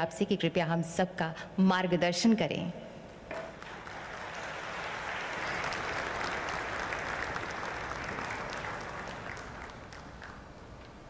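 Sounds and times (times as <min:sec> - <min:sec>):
audience applauding: 0:03.4 - 0:10.9.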